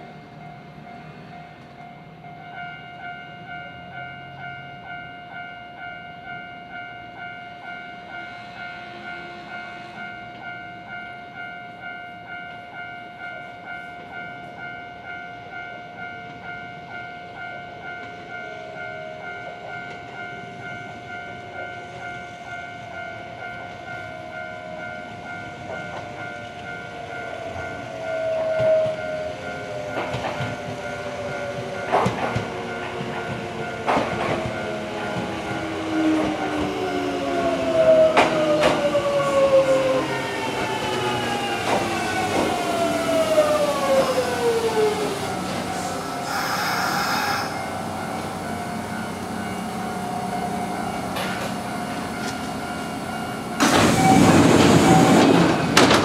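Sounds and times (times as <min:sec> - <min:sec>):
train approaching: 0:00.0 - 0:56.0
level crossing bell clanging: 0:47.5 - 0:55.8.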